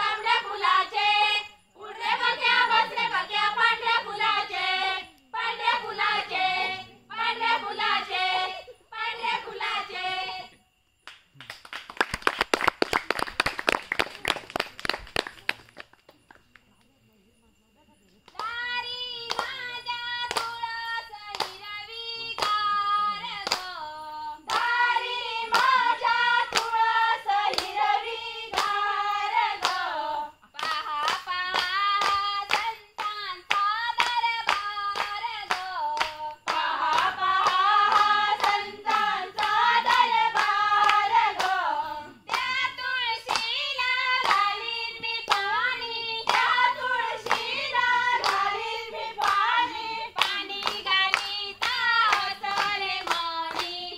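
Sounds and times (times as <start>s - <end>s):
women singing in unison: 0.0s - 10.7s, 18.3s - 53.9s
hand clapping: 11.0s - 16.8s, 19.2s - 21.7s, 22.3s - 22.8s, 23.4s - 23.7s, 24.5s - 25.8s, 26.4s - 26.8s, 27.4s - 27.8s, 28.5s - 29.8s, 30.5s - 41.6s, 42.3s - 45.6s, 46.2s - 53.9s.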